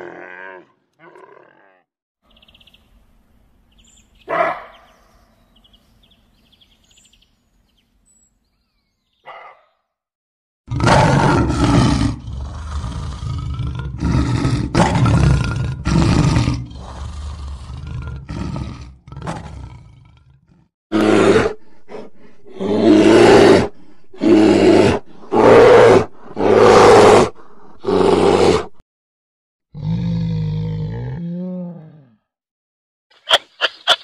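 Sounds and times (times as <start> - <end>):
bear growling: 0.0 - 1.9, 10.7 - 28.8
lion roaring: 0.0 - 1.9, 10.7 - 28.8, 29.7 - 32.2.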